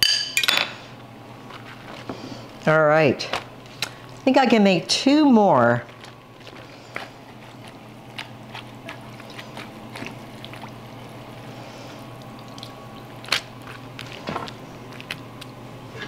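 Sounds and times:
liquid dripping and squishing: 5.8 - 15.7.

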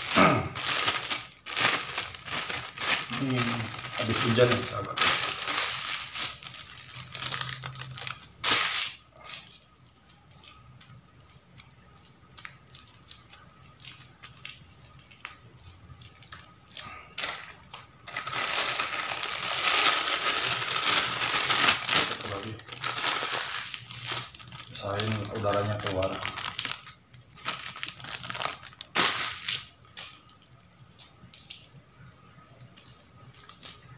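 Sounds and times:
plastic bag crinkling: 0.0 - 31.8, 32.7 - 33.9.

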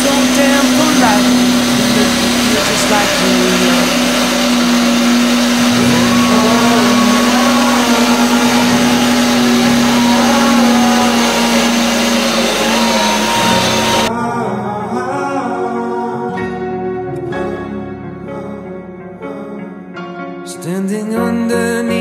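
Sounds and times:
electric meat grinder motor: 0.0 - 14.1.

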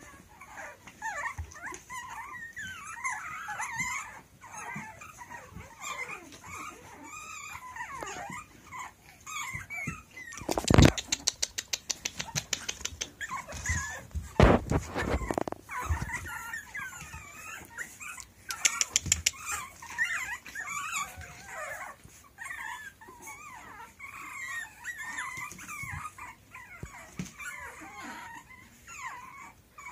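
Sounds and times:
puppies whining and yipping: 0.0 - 29.9
quick clicks: 10.4 - 13.2.

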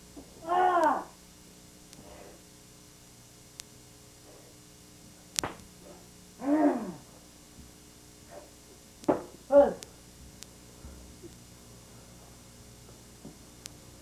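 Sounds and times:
karate shouts: 0.4 - 1.1
sharp snap: 5.3 - 5.7.

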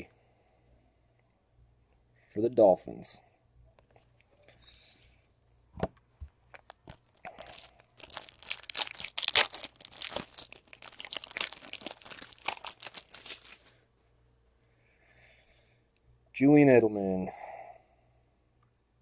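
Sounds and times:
wrapper clicks: 6.5 - 13.6
wrapper crackling and tearing: 6.5 - 13.7.

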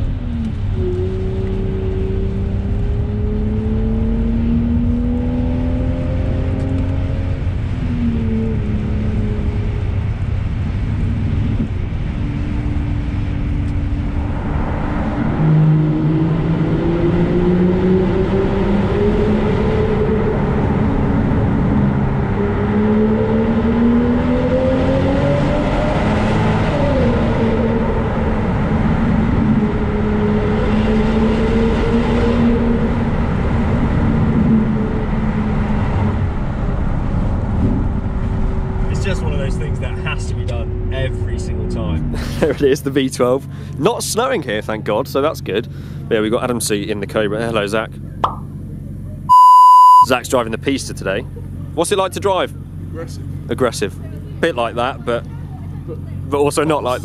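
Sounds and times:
engine revving with upshifts: 0.0 - 42.6, 49.3 - 50.2.

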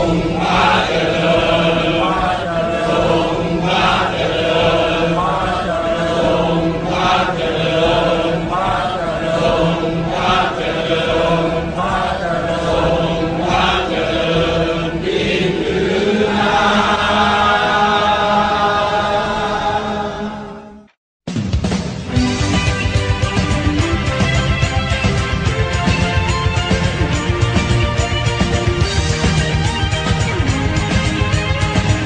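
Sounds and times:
choir singing slow chant: 0.0 - 21.0.

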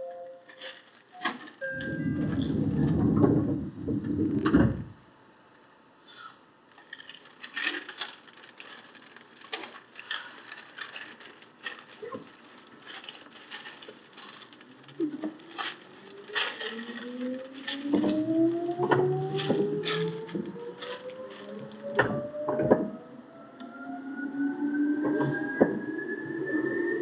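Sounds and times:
electric train motor whine: 1.6 - 5.1, 15.4 - 27.0
clicks and rustles: 6.7 - 22.2.

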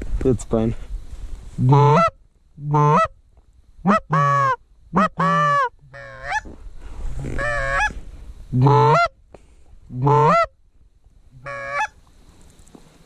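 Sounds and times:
goose honking: 1.6 - 3.1, 3.8 - 6.5, 7.3 - 8.0, 8.6 - 9.1, 10.0 - 10.5, 11.4 - 12.0.

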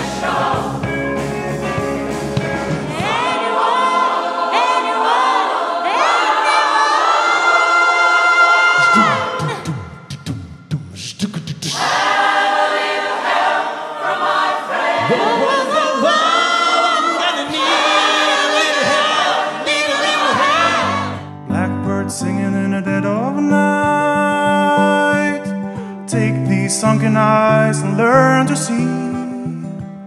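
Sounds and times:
man and choir singing pop song: 0.0 - 1.2, 2.8 - 29.4
held notes over bass line: 0.0 - 3.3, 20.4 - 29.6.

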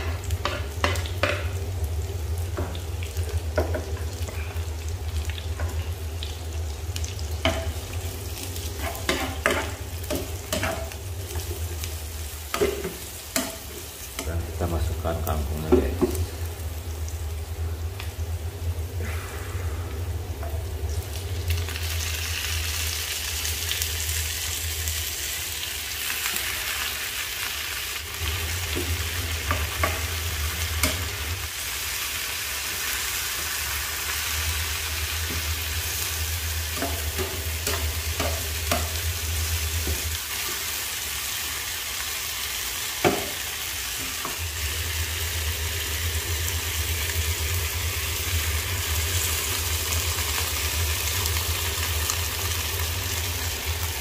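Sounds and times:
vegetables sizzling in a pan: 0.0 - 54.0
low hum: 14.3 - 24.9.

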